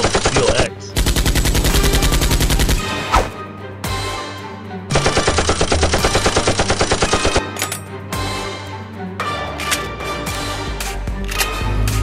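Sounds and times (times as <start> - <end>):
machine-gun fire: 0.0 - 2.9, 4.9 - 7.4
background music: 0.0 - 12.0.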